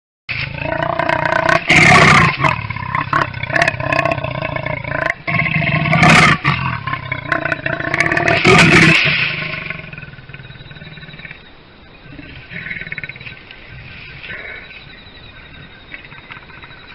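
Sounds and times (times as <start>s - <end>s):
leopard snarls: 0.4s - 11.4s, 14.2s - 14.8s
leopard growling: 0.4s - 14.9s.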